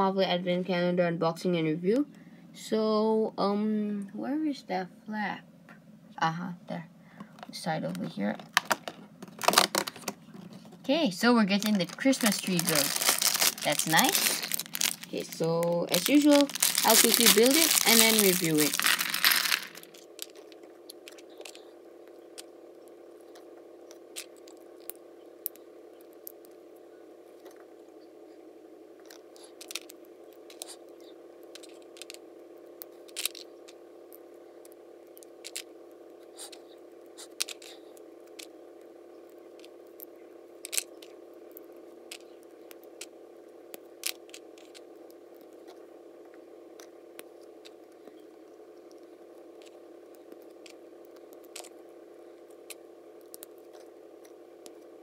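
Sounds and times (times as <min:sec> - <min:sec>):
steady background hum: 0:00.0 - 0:55.0
plastic pieces clicking: 0:08.5 - 0:10.1, 0:11.6 - 0:21.6.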